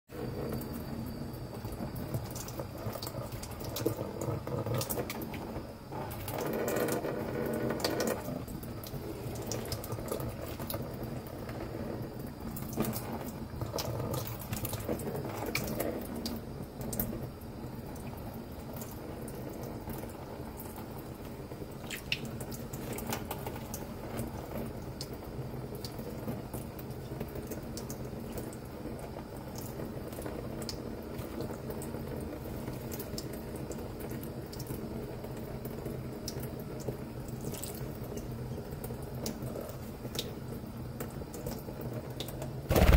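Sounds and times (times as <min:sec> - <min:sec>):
water running from a faucet: 0:00.2 - 0:42.7.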